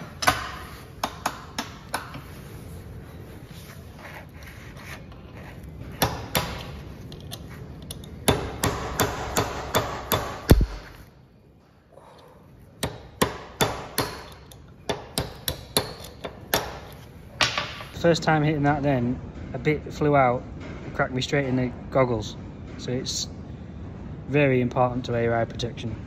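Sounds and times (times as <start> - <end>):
hammer striking steel punch: 6.0 - 6.8, 8.2 - 11.0, 12.8 - 17.7.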